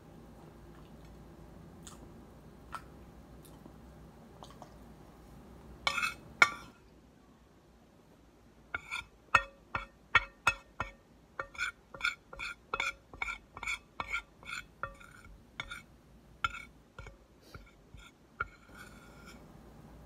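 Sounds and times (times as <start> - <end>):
metal spoon clinking on plate: 8.8 - 15.9.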